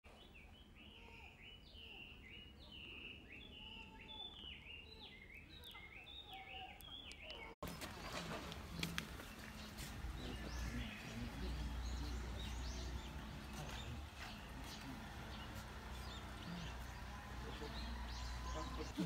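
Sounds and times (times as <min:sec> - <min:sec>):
songbird singing whistled notes: 0:00.2 - 0:07.9.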